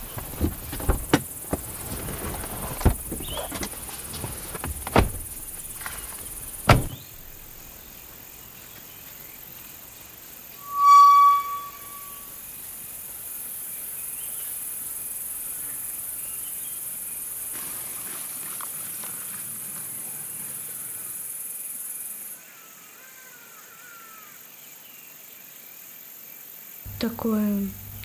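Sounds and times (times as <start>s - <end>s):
insects chirring: 0.0s - 12.3s.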